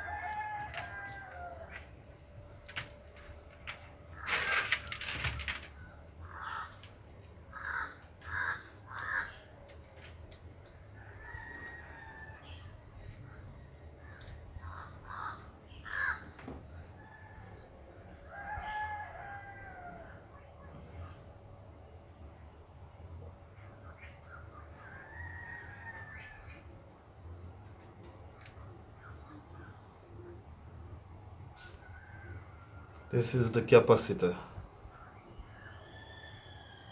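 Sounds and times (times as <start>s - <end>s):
faint bird calls: 0.0s - 10.2s, 11.0s - 21.2s.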